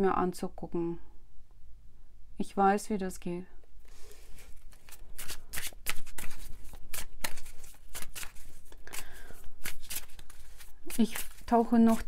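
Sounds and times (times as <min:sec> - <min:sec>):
cards being shuffled: 0:03.9 - 0:12.0.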